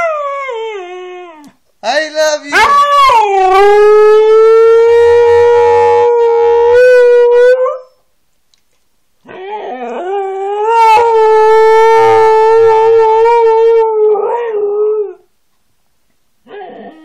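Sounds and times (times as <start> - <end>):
dog howling: 2.5 - 8.0, 9.3 - 15.2.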